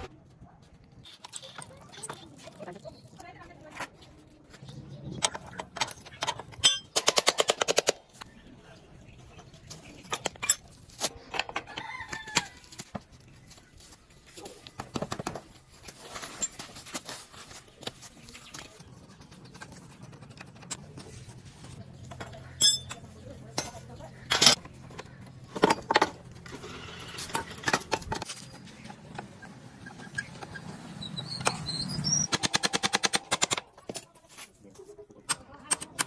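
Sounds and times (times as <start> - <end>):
metal tools clinking and knocking: 5.2 - 7.9, 9.7 - 12.9, 22.0 - 28.3.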